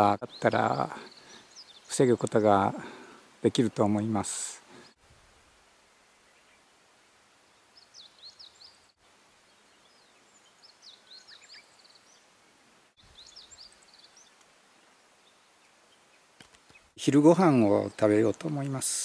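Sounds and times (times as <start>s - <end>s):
faint outdoor hiss: 0.0s - 19.0s
songbird singing high notes: 7.7s - 12.3s.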